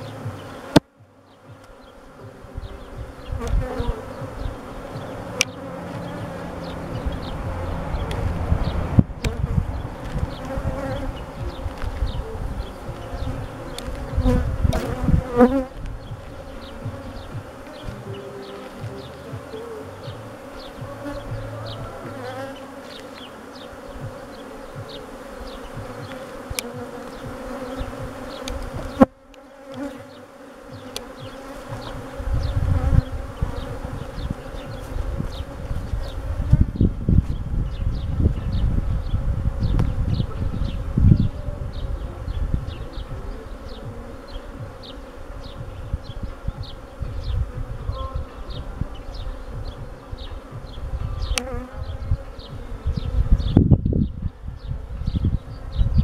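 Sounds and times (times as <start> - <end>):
bee colony humming: 0.0 - 56.0
bees buzzing past: 0.0 - 56.0
low rumble: 4.0 - 18.2.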